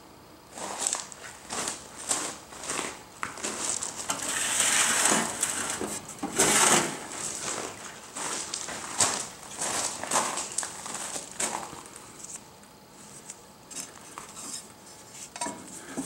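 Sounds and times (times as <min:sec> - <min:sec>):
scraping and rustling handling: 0:00.6 - 0:12.4.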